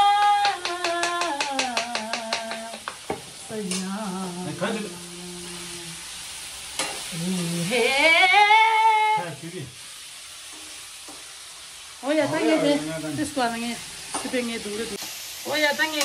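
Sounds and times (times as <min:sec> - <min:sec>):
person humming: 0:00.0 - 0:02.8, 0:03.6 - 0:06.0, 0:07.1 - 0:09.2
food sizzling in a wok: 0:00.0 - 0:16.0.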